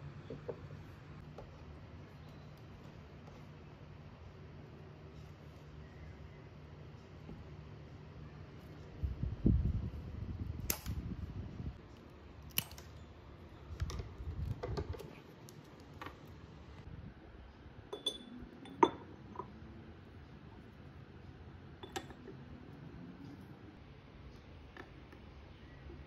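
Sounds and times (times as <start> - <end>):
objects knocking and clicking: 13.8 - 15.2.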